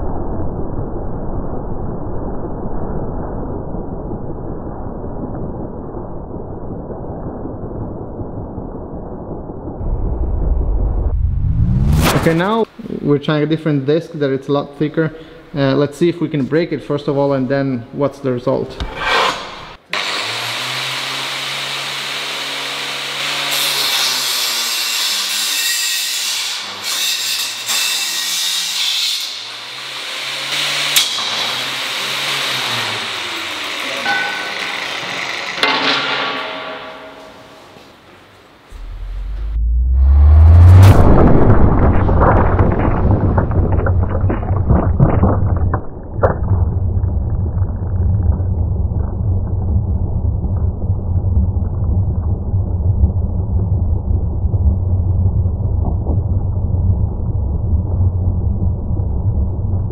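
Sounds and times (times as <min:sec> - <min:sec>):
low steady rumble: 0:00.4 - 0:12.8, 0:38.7 - 0:59.9.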